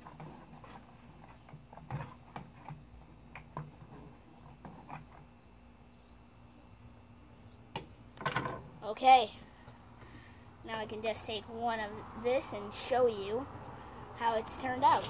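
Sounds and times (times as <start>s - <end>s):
wooden spoon stirring in bowl: 0.0s - 5.3s.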